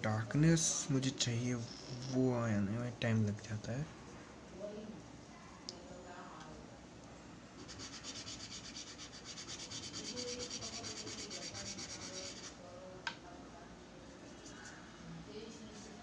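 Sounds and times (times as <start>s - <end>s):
charcoal rubbing on paper: 7.6s - 12.6s.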